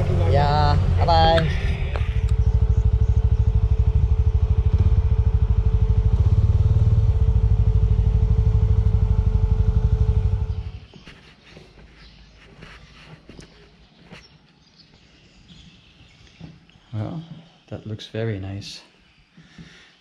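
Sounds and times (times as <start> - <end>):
motorcycle engine running: 0.0 - 10.9.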